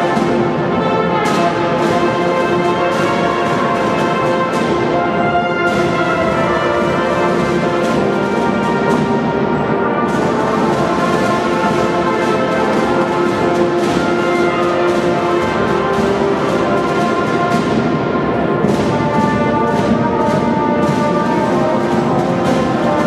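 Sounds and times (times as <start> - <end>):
brass sustained notes: 0.0 - 23.0
marching band playing: 0.0 - 23.0
snare and bass drums: 0.0 - 23.0.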